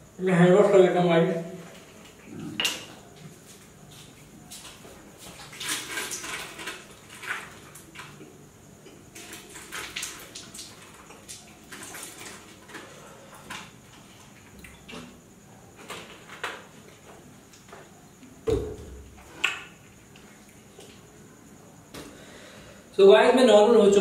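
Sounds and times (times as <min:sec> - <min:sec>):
man breathing hard: 0:22.1 - 0:22.9.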